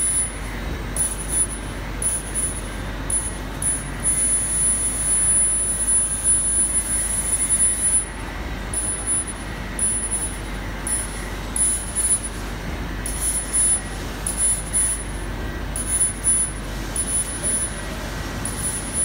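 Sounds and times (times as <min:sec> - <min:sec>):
machine hum and fan noise: 0:00.0 - 0:19.0.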